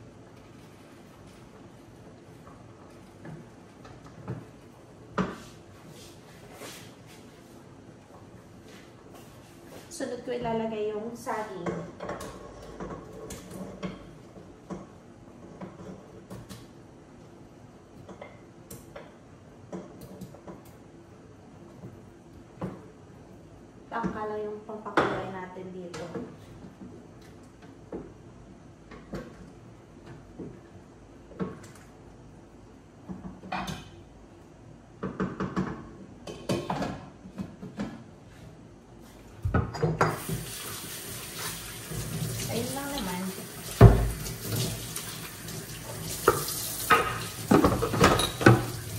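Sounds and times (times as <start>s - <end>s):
faucet running into sink: 40.1s - 48.9s.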